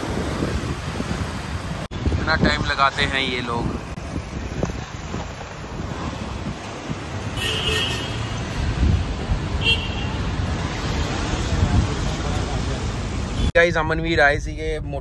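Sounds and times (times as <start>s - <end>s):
passing road traffic rumble: 0.0s - 13.5s
vehicle horn tooting: 7.4s - 8.4s, 9.6s - 10.2s.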